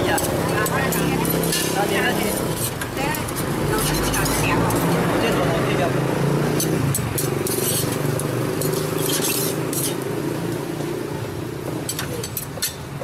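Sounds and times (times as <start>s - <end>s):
spatula and lids clinking on pans: 0.0s - 5.1s, 6.6s - 10.0s, 11.8s - 13.0s.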